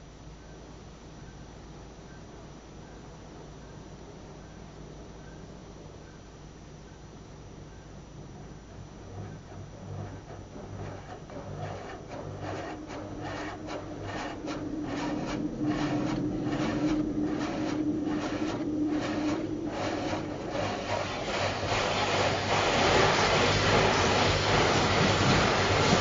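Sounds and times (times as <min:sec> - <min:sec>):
machine hum: 0:07.4 - 0:26.0
dense rushing noise: 0:09.4 - 0:26.0.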